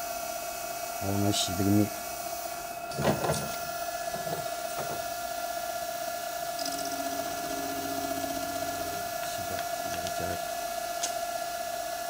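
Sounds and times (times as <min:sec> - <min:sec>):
milling machine whine: 0:00.0 - 0:12.0
fast rattling: 0:02.9 - 0:05.2.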